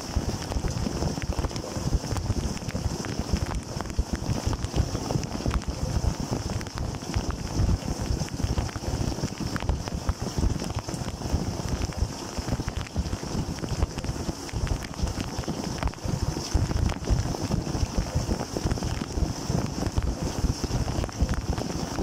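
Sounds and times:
dishwasher water jets churning: 0.0 - 22.0.

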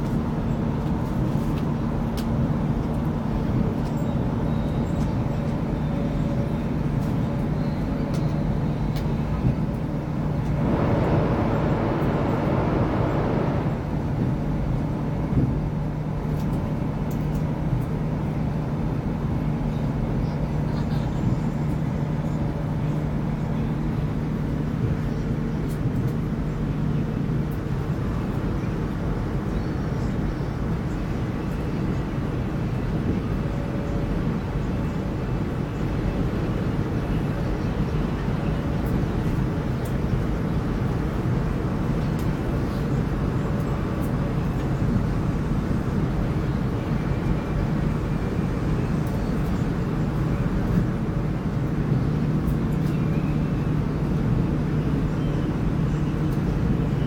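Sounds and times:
wheels rumbling on rail: 0.0 - 57.0
air rushing past train: 9.0 - 16.2
low hum: 9.2 - 16.1.

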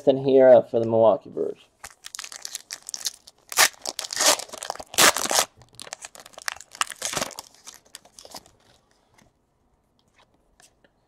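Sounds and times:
foil wrapper tearing and crinkling: 1.9 - 8.7.

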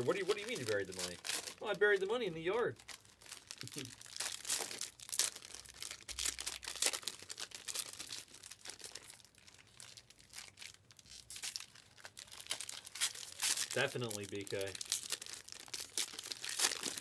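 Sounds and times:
card pack wrapper crinkling and tearing: 0.0 - 17.0.

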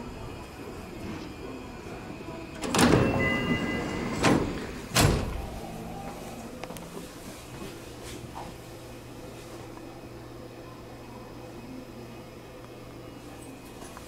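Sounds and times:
low train hum: 0.0 - 14.0
sliding train doors closing: 0.1 - 8.6
doors thudding shut: 2.6 - 5.6
brief door warning tone: 2.6 - 6.4.

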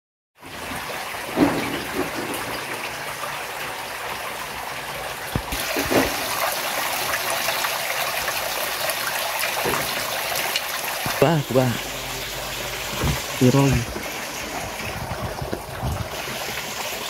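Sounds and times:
water rushing and splashing: 0.5 - 17.0
low thumps: 11.8 - 16.2.

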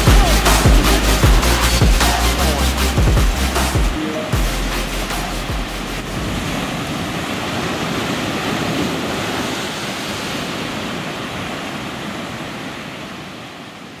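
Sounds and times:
ocean surf washing over rocks: 6.0 - 14.0.

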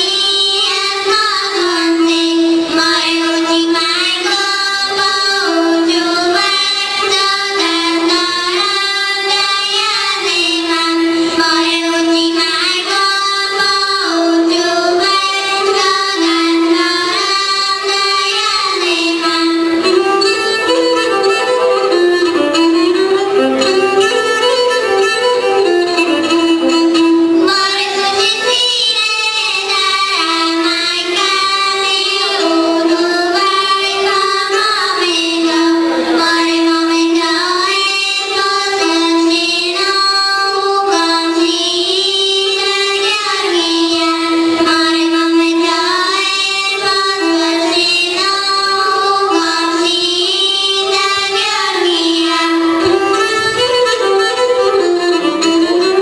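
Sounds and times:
girls singing in harmony: 0.0 - 24.2, 25.6 - 56.0
bowed string instrument: 0.0 - 56.0.

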